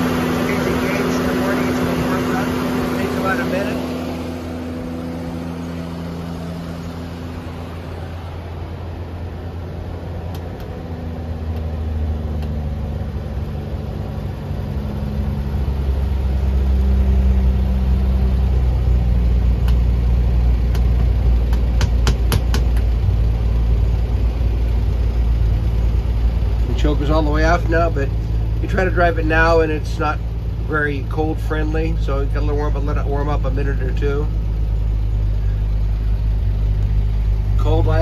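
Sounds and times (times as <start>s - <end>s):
engine fast-idling: 0.0s - 38.0s.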